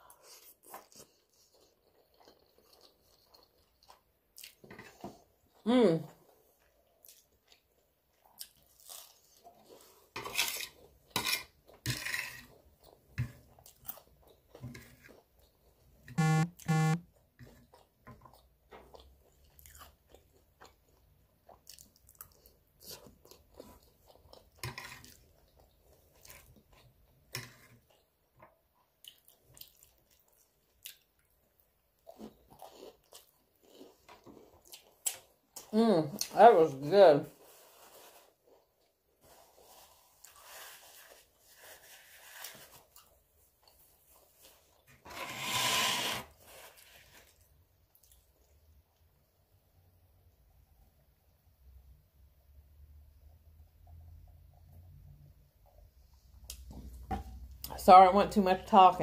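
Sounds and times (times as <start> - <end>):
chewing and wet mouth sounds: 0.0 - 5.6, 6.2 - 11.8, 12.5 - 16.5, 17.1 - 36.4, 37.4 - 44.9, 46.5 - 49.2.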